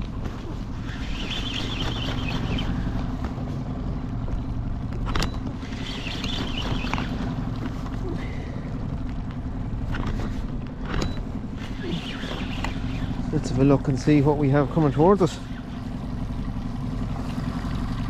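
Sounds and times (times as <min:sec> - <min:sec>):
wind and water rumble: 0:00.0 - 0:18.0.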